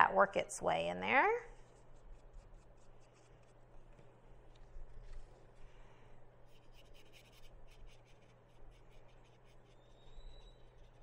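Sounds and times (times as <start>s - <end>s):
low steady hum: 0.0s - 11.0s
scratches on painted canvas: 6.5s - 11.0s.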